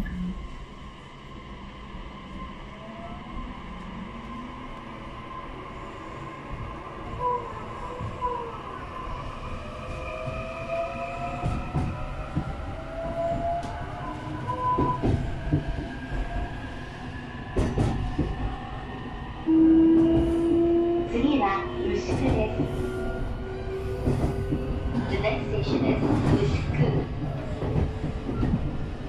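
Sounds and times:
train running rumble: 0:19.9 - 0:29.0.

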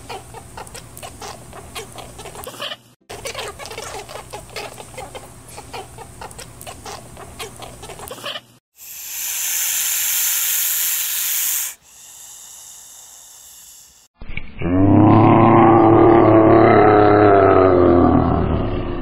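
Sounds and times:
lizard hissing: 0:08.7 - 0:14.1.

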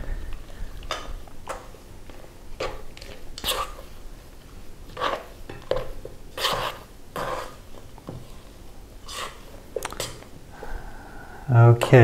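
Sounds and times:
spoon scraping a metal bowl: 0:03.4 - 0:03.8, 0:04.9 - 0:07.6, 0:09.0 - 0:09.5.

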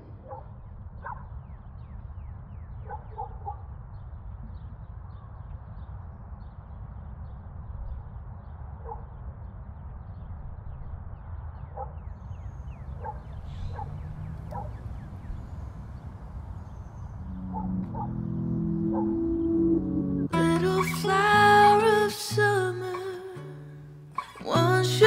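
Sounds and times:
low outdoor rumble: 0:00.0 - 0:22.8
birds calling and chirping: 0:08.4 - 0:21.0.

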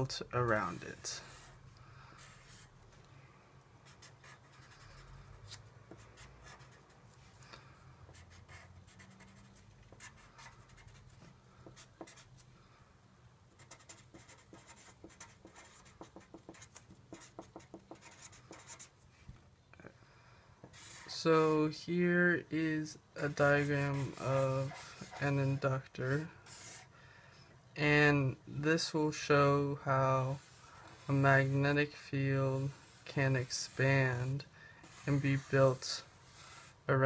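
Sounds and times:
marker strokes on paper: 0:00.5 - 0:01.6, 0:02.2 - 0:02.8, 0:13.6 - 0:19.2, 0:20.6 - 0:21.2, 0:23.2 - 0:26.9, 0:30.2 - 0:36.9.

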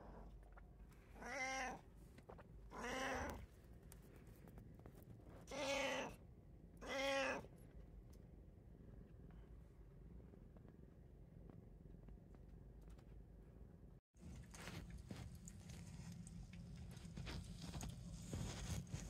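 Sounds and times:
cat meowing: 0:01.2 - 0:01.8, 0:02.7 - 0:03.4, 0:05.5 - 0:06.2, 0:06.8 - 0:07.5.

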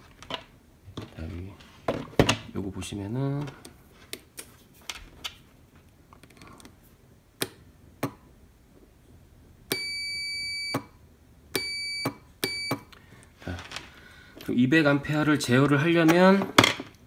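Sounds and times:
multimeter beeps: 0:09.7 - 0:11.0, 0:11.6 - 0:12.9.

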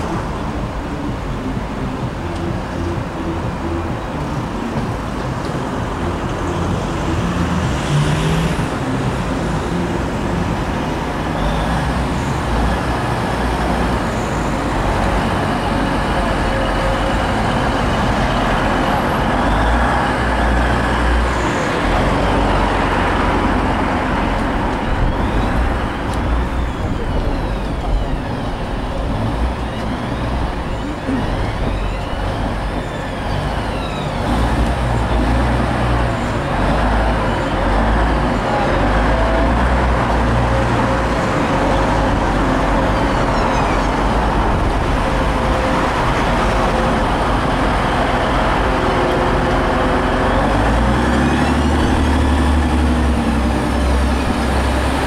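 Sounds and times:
diesel engine drone: 0:00.0 - 0:55.0
train wheels rumbling on rails: 0:00.0 - 0:55.0
high squeals: 0:11.2 - 0:55.0.

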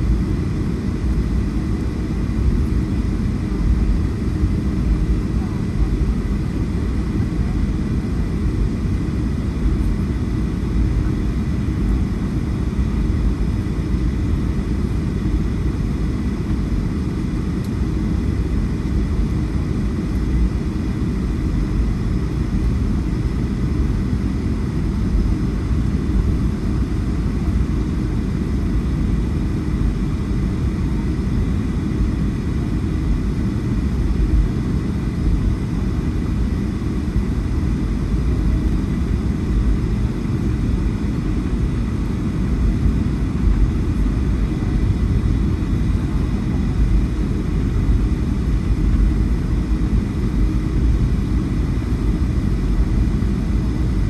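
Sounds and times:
faint steady whine: 0:00.0 - 0:54.0
jet engines rumbling: 0:00.0 - 0:54.0.

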